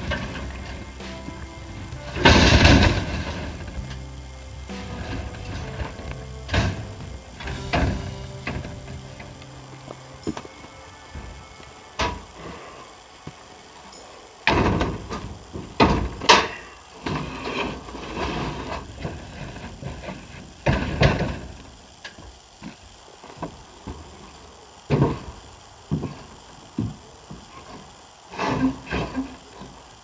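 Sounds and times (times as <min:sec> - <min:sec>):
metal cage knocking and scraping: 0:00.0 - 0:04.1, 0:04.7 - 0:09.5.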